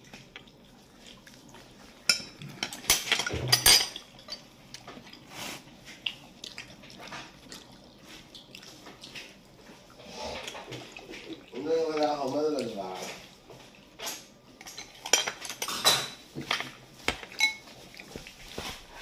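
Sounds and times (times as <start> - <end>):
dishes and cutlery clinking: 2.0 - 5.3, 14.0 - 18.7.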